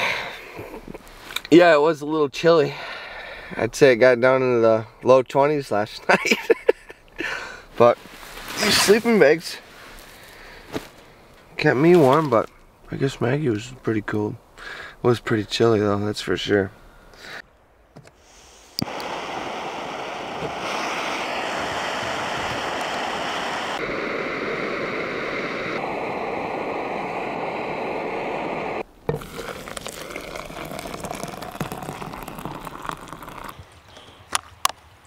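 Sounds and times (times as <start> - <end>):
stove burner hissing: 18.2 - 33.5
water pouring and splashing: 29.1 - 33.6.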